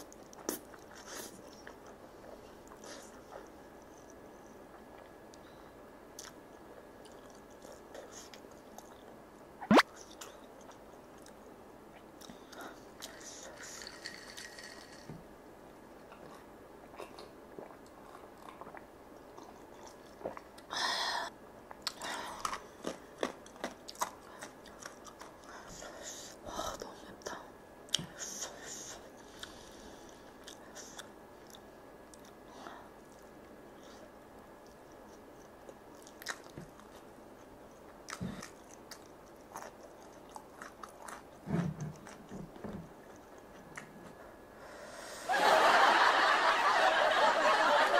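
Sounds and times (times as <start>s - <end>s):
wet chewing: 34.6s - 42.4s.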